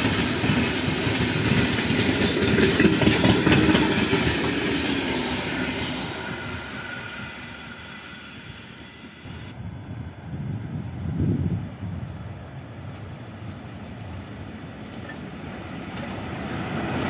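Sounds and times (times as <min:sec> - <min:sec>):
train wagons clattering: 0:00.0 - 0:06.5
freight train wheels rumbling: 0:00.0 - 0:17.0.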